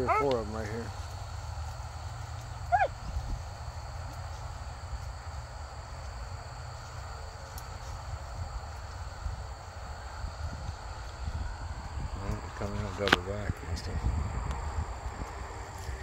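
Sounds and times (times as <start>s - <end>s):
hound baying: 0.0s - 0.5s, 2.4s - 3.2s
steady low rumble: 0.0s - 16.0s.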